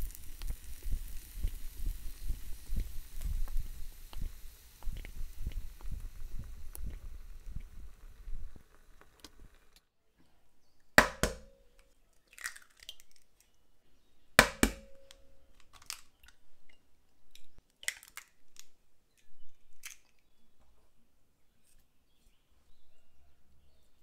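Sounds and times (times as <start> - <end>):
eggshell crackling: 0.0 - 9.8, 11.0 - 13.6
egg cracking on glass bowl: 11.0 - 13.4, 14.4 - 16.4.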